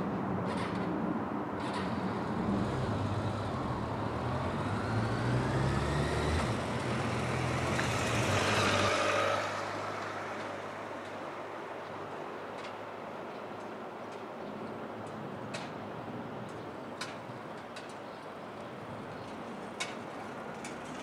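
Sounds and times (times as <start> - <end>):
heavy vehicle rumbling past: 1.6 - 10.4.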